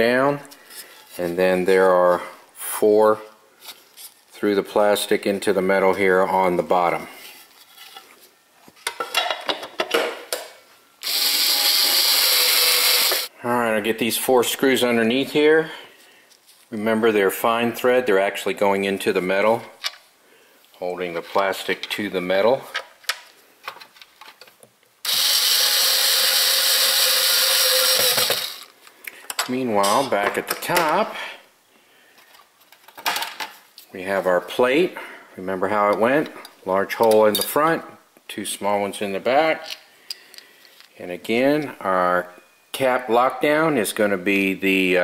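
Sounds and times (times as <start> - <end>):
cordless screwdriver running: 11.0 - 13.3, 25.1 - 28.7.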